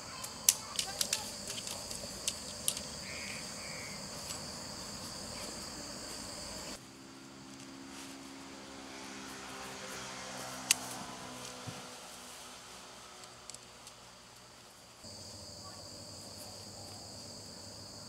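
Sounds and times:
tent poles clicking: 0.0s - 4.5s, 10.4s - 12.2s, 13.2s - 14.4s
insects chirring: 0.0s - 7.8s, 12.6s - 18.0s.

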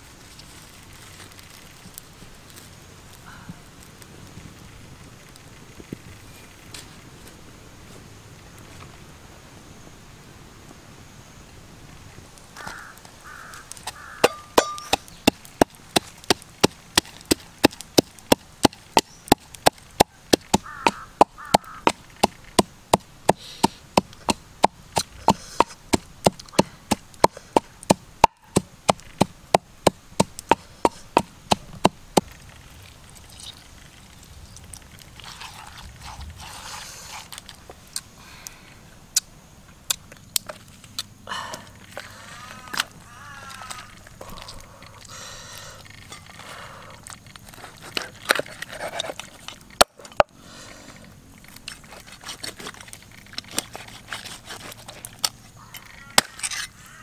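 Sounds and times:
pestle pounding in wooden mortar: 14.2s - 32.3s.

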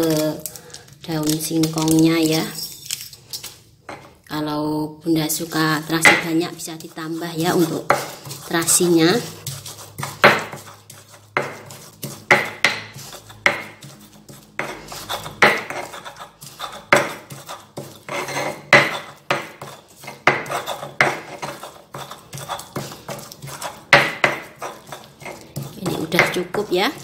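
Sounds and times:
gritty scraping in mortar: 6.2s - 12.3s, 12.9s - 27.0s
stone pestle knocking: 10.2s - 10.7s, 11.3s - 13.8s, 16.7s - 24.8s.

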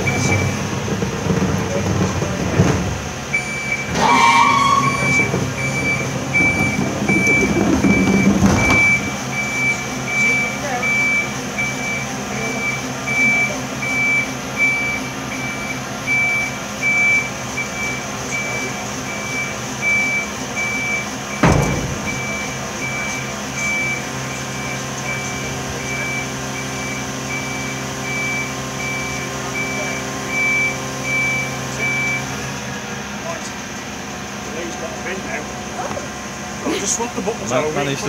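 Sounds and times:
truck warning beeper: 0.0s - 0.7s, 3.3s - 32.4s
truck engine and hydraulics: 0.0s - 38.0s
loud clunk: 6.3s - 9.1s, 21.3s - 23.1s.

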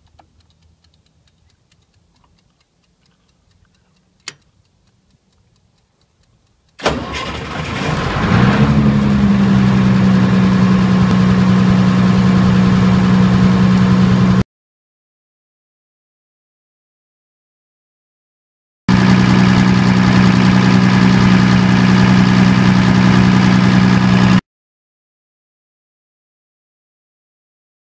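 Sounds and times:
kitchen timer ticking: 0.0s - 6.9s
sharp click: 3.6s - 4.6s
diesel generator running: 6.8s - 14.4s, 18.9s - 24.4s.

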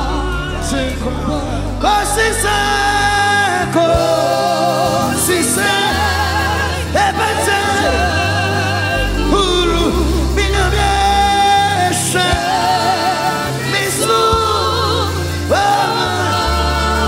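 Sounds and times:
band accompaniment with bass: 0.0s - 17.0s
man singing with vibrato: 0.0s - 17.0s.

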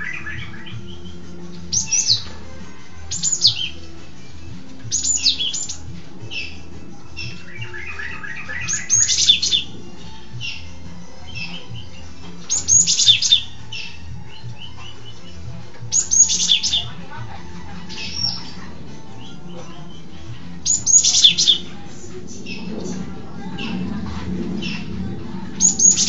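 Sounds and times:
bird chirping: 0.0s - 26.0s.

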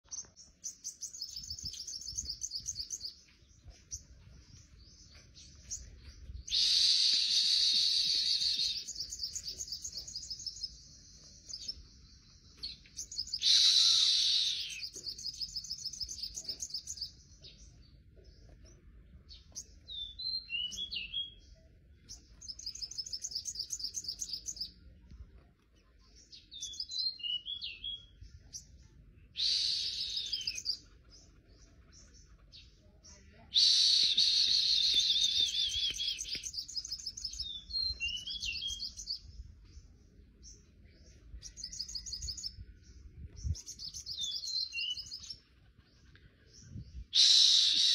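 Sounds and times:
bird singing trills: 0.0s - 24.8s, 25.8s - 47.9s
harsh rasping bird calls: 13.0s - 17.0s.

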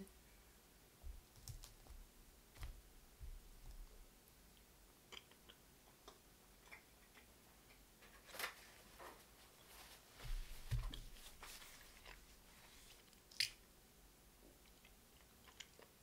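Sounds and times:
chewing: 14.6s - 16.0s.

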